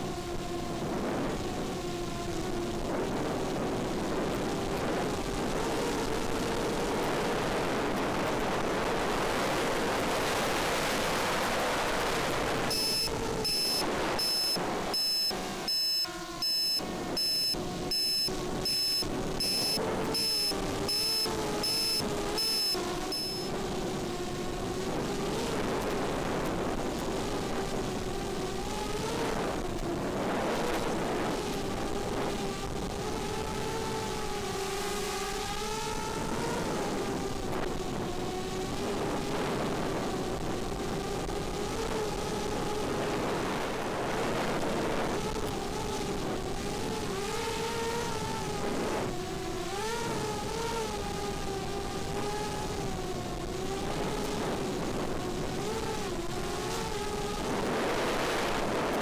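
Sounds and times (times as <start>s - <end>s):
drone motors buzzing whine: 0.1s - 59.0s
quadcopter motors whining: 12.1s - 24.3s, 45.2s - 54.8s
short electronic beeps: 12.6s - 23.5s
wind rush: 35.6s - 59.0s.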